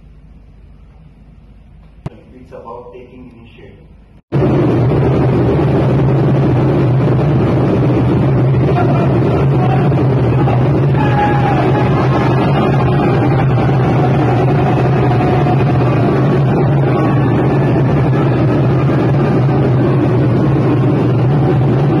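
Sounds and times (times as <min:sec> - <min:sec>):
djembe drum roll: 0:04.4 - 0:22.0
people shouting: 0:08.5 - 0:22.0.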